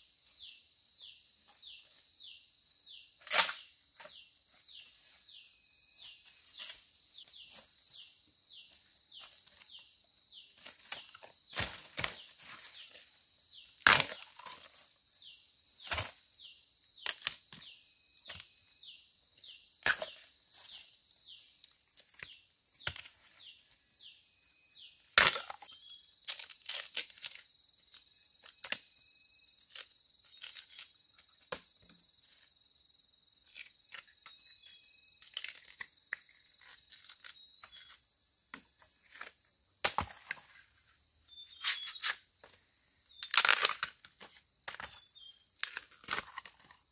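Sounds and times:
high insect drone: 0:00.0 - 0:46.9
plant stems snapping: 0:43.2 - 0:44.0.

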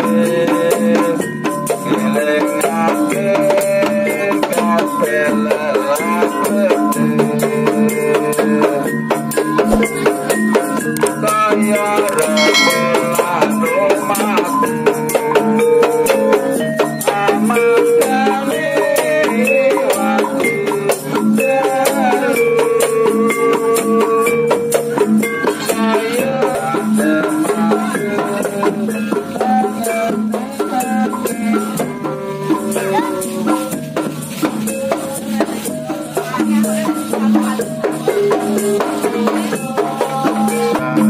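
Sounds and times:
frame drums: 0:07.2 - 0:11.2, 0:12.3 - 0:41.0
rattling percussion: 0:12.3 - 0:14.4
person singing melody: 0:12.4 - 0:13.6
metallophones: 0:12.4 - 0:13.9.

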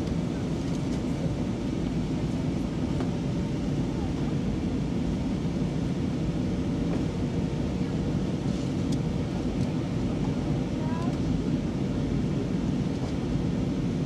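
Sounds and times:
airplane cabin rumble: 0:00.0 - 0:14.0.

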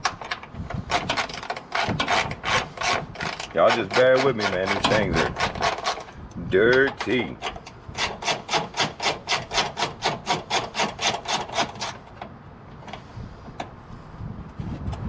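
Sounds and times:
ratchet wrench rasping: 0:00.8 - 0:12.1.

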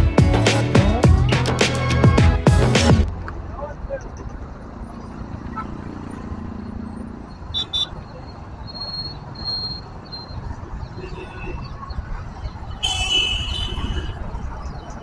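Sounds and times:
road traffic passing: 0:00.0 - 0:15.0
vehicle horn beeps: 0:07.5 - 0:08.0, 0:12.8 - 0:14.2.

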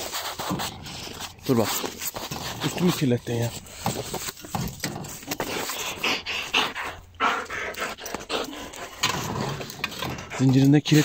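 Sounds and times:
dog panting fast: 0:05.4 - 0:11.0.

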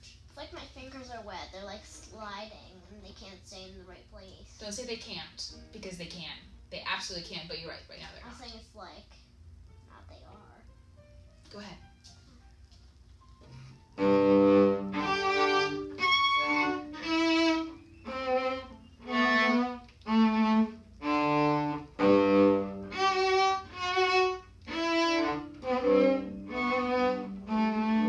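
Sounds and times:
violin short bowed notes: 0:14.0 - 0:28.0.

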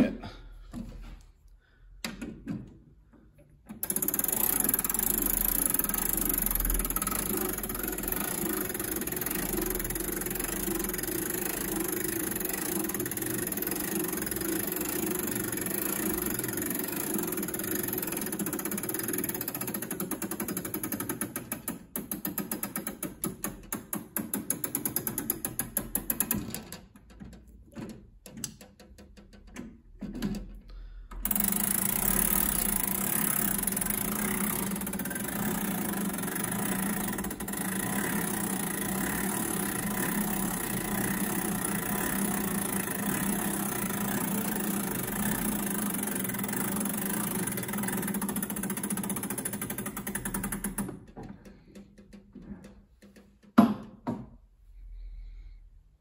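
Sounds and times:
clock winding ratchet clicks: 0:03.7 - 0:26.4, 0:31.2 - 0:51.0.

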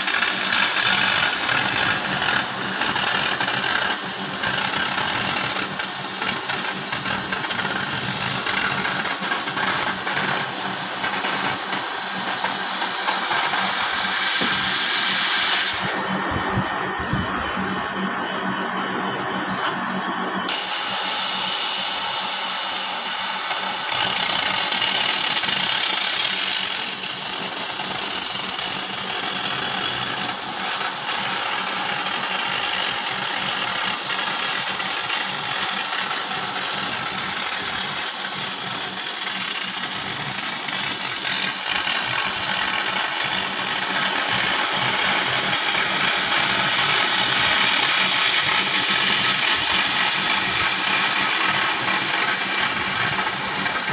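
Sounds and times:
cutting torch flame hissing: 0:00.0 - 0:16.0, 0:20.5 - 0:53.9.

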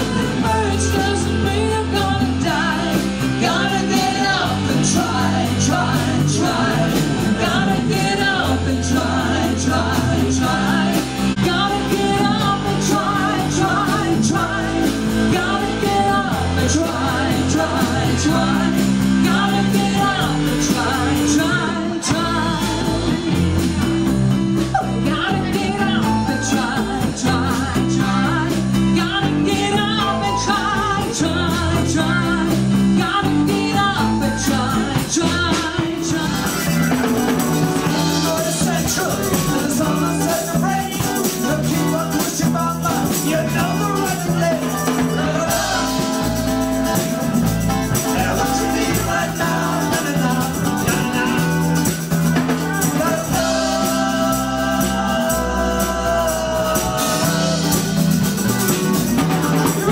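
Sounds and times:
person singing: 0:00.0 - 0:59.9
rock band playing live: 0:00.0 - 0:59.9.

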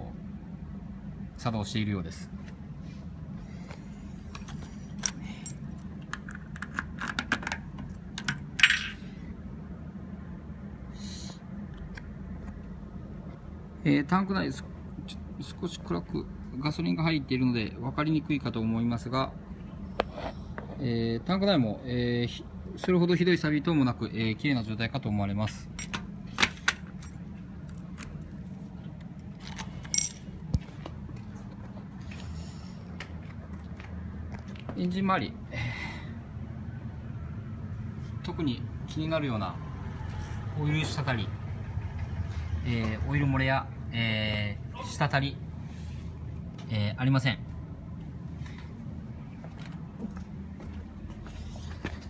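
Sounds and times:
keys jangling and clicking: 0:04.4 - 0:07.1, 0:29.4 - 0:30.3.

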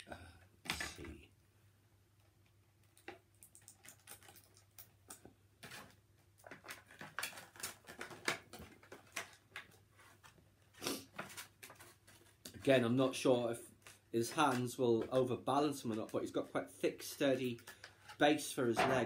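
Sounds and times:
plastic crackling: 0:02.4 - 0:19.0
scissors snipping plastic: 0:05.1 - 0:09.4.

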